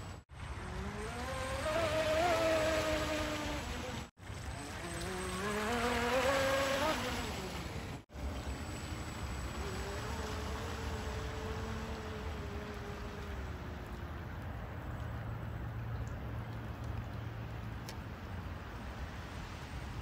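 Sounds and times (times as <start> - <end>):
rc speedboat motor whine: 0.0 - 14.2.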